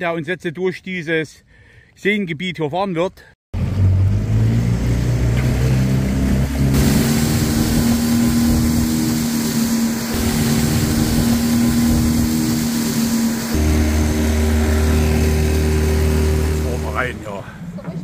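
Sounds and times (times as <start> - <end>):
outboard motor droning: 4.8 - 17.7
water spray hissing off hull: 6.6 - 17.4.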